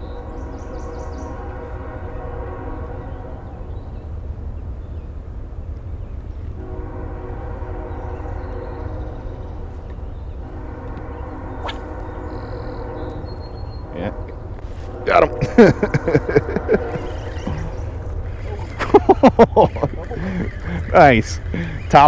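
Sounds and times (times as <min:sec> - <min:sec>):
train horn blasts: 0:00.0 - 0:04.0, 0:06.5 - 0:18.4
steady low rumble: 0:00.0 - 0:22.0.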